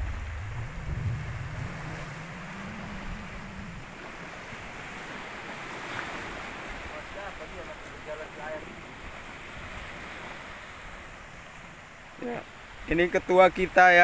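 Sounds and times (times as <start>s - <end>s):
low rumble: 0.0s - 5.0s
wind buffeting microphone: 0.0s - 11.8s
sea waves: 0.0s - 14.0s.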